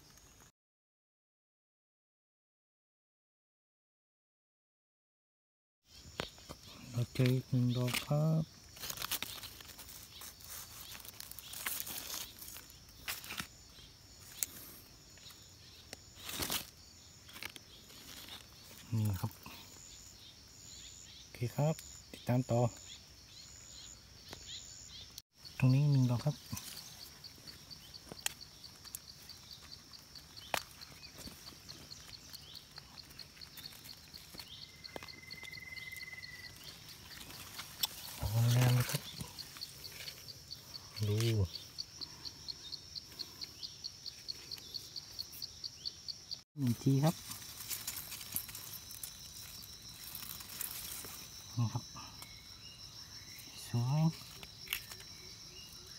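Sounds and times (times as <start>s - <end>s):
high insect chirping: 5.9s - 55.9s
sharp clicks in leaf litter: 7.2s - 13.5s, 15.9s - 19.2s, 28.0s - 29.0s, 30.3s - 40.2s, 47.1s - 51.3s, 54.2s - 55.2s
dry leaves rustling and crackling: 7.8s - 13.6s, 16.2s - 19.2s, 26.5s - 40.2s, 46.6s - 51.6s.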